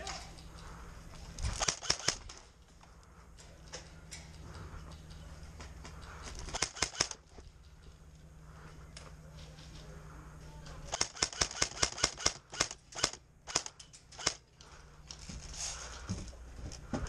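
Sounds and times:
airsoft gun bursts: 1.5s - 2.4s, 6.4s - 7.2s, 10.9s - 14.5s.

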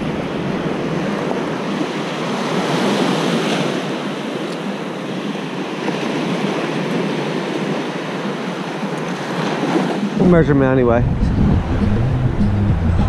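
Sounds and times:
surf waves washing in: 0.0s - 13.0s
wind on microphone: 9.4s - 13.0s.

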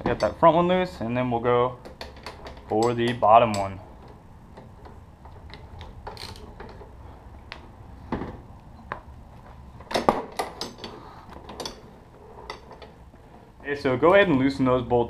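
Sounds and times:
metal clicks and knocks: 1.8s - 6.9s, 9.8s - 11.9s.

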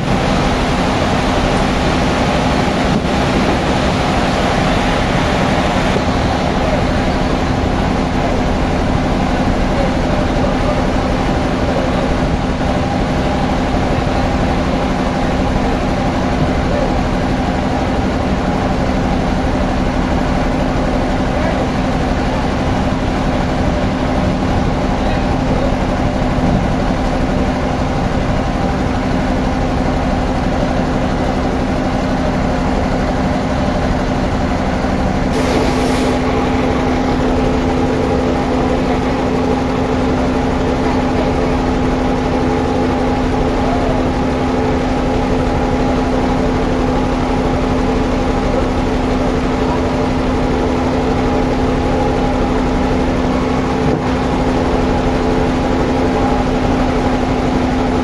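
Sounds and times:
sawmill machinery humming: 0.0s - 58.0s
brief hiss: 35.3s - 36.6s.

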